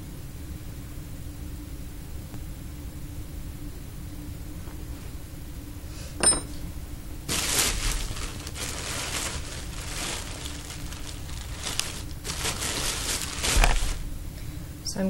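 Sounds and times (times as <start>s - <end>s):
rustling and handling noise: 7.2s - 14.2s.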